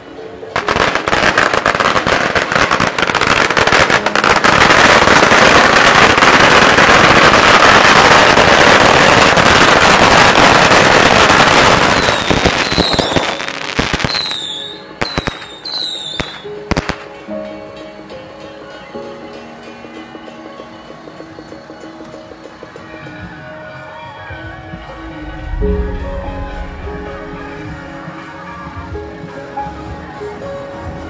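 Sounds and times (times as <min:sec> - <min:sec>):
firecrackers crackling: 0:00.6 - 0:17.3.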